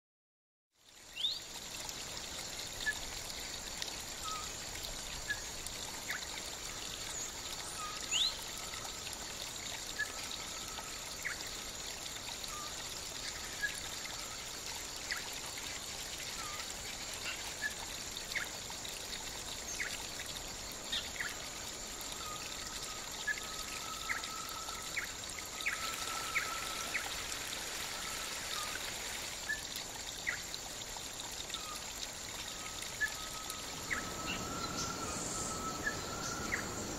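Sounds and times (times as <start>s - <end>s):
shallow water trickling: 0.8s - 36.9s
bird chirps: 32.5s - 36.9s.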